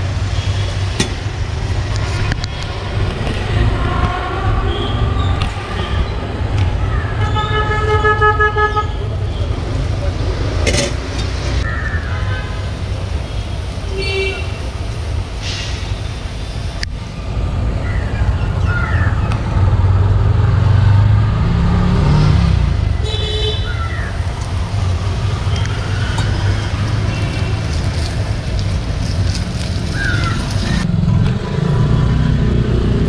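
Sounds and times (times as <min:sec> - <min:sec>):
traffic rumble: 0:00.0 - 0:33.0
car horn toot: 0:07.2 - 0:09.2.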